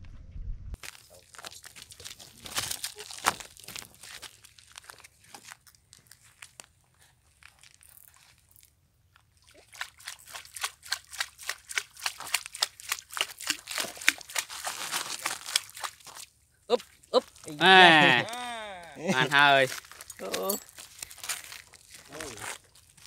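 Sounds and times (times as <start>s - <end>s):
fish splashing at surface: 9.4s - 17.5s.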